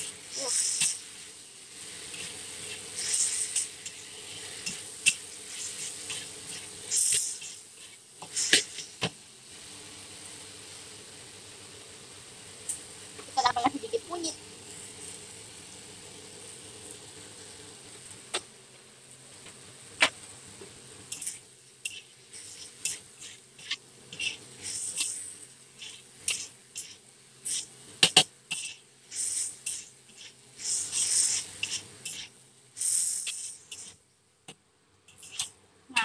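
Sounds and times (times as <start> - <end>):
spatula scraping a wok: 0.0 - 9.1, 21.1 - 34.0, 35.1 - 35.6
food sizzling: 0.0 - 36.0.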